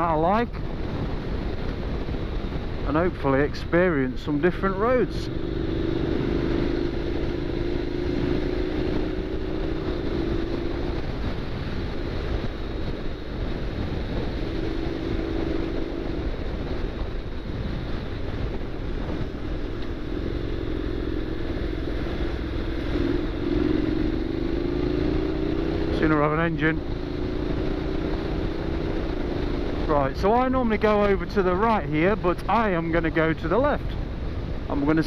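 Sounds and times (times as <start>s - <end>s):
motorcycle engine running: 0.0s - 35.0s
wind rumble on microphone: 0.0s - 35.0s.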